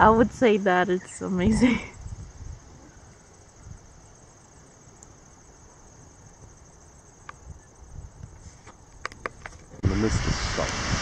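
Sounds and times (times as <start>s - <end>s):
wind rumble on microphone: 0.0s - 0.6s, 1.2s - 4.0s, 7.3s - 11.0s
insects trilling: 0.0s - 9.8s.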